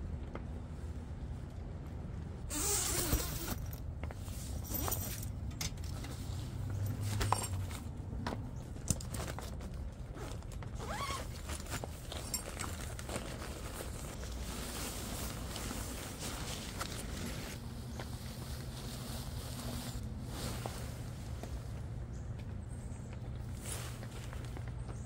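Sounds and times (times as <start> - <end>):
tent zipper pulled open: 2.5 - 3.8, 10.2 - 14.1
small clicks of stuff bag: 2.9 - 25.0
nylon fabric rustling: 8.7 - 21.8.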